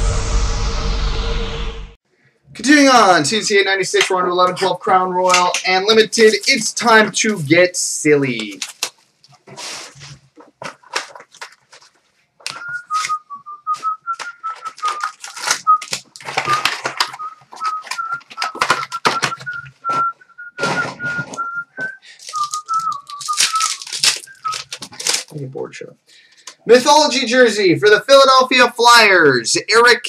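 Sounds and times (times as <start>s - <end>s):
foil wrappers crinkling and tearing: 8.3s - 25.5s
cards being handled: 8.4s - 20.1s, 21.3s - 25.4s
person whistling a tune: 12.5s - 24.8s.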